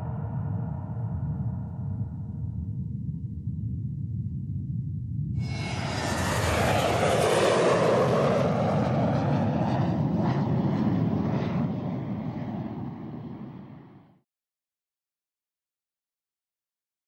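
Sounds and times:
jet airplane passing overhead: 5.4s - 14.2s.

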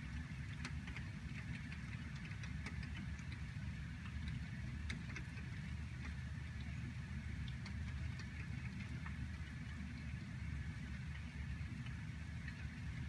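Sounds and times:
raindrops ticking on window glass: 0.0s - 13.0s.

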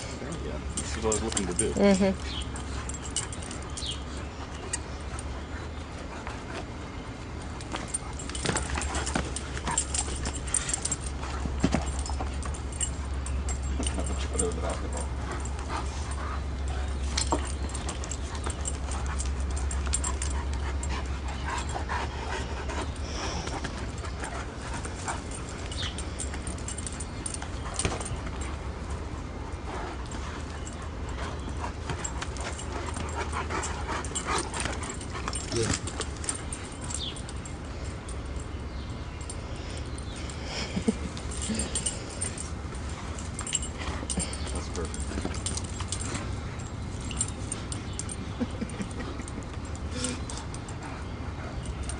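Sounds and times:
dog paws scuffling on dirt: 0.2s - 37.9s.

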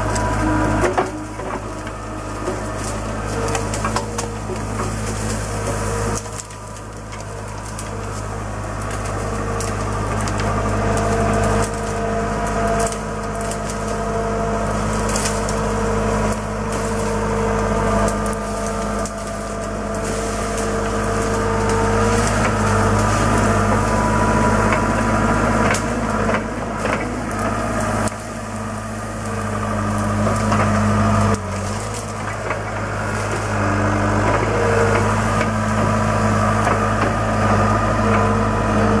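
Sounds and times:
brush and small trees snapping: 0.0s - 39.0s
loader engine running under load: 0.0s - 39.0s.

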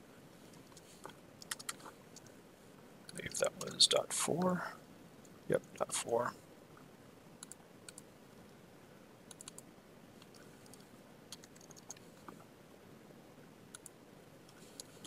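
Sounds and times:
low room hiss: 0.0s - 15.0s
keyboard typing clicks: 0.6s - 2.3s, 7.4s - 8.0s, 9.3s - 9.6s, 10.2s - 12.0s.

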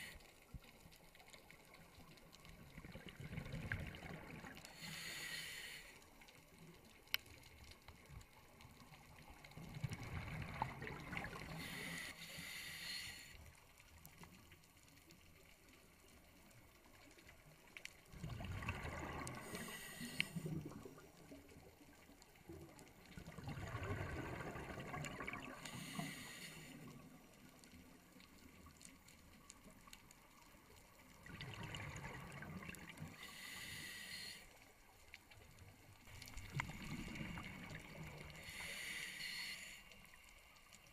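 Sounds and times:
exhaled bubbles rushing: 2.7s - 4.6s, 9.7s - 11.5s, 18.2s - 19.6s, 23.1s - 25.6s, 31.2s - 33.0s, 36.4s - 38.3s
diver breathing through regulator: 4.7s - 6.0s, 11.5s - 13.4s, 19.3s - 20.6s, 25.5s - 27.0s, 33.1s - 34.5s, 38.3s - 40.0s.

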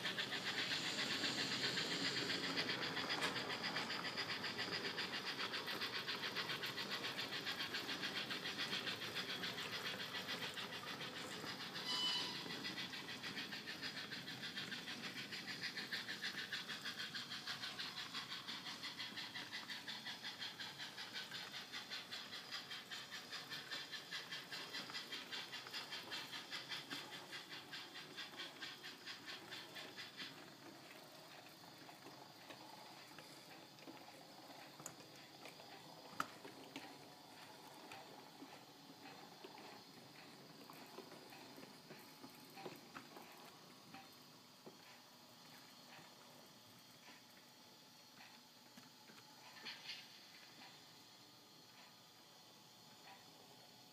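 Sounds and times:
model train wheels rattling: 0.0s - 47.5s, 48.1s - 50.8s
steam engine chuffing: 0.0s - 53.9s
short high squeak: 11.8s - 12.5s.

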